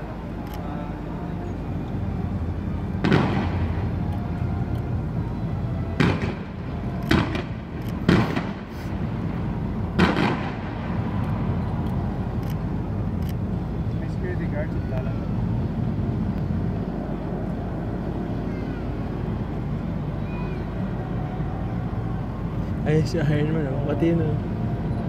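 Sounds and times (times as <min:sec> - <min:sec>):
steady low rumble: 0:00.0 - 0:25.0
pyrotechnic bangs with echo: 0:03.0 - 0:03.8, 0:06.0 - 0:08.8, 0:09.9 - 0:11.2.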